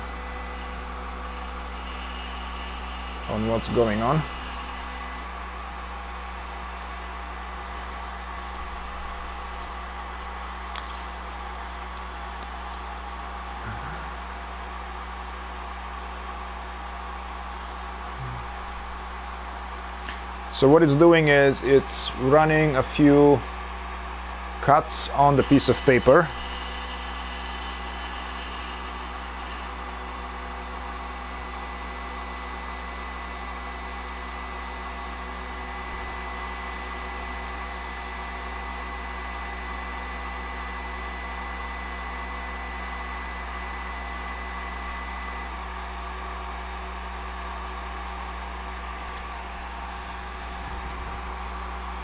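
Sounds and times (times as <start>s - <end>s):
thin high whine: 0.0s - 5.7s, 24.6s - 46.6s
fan-like hum: 0.0s - 52.0s.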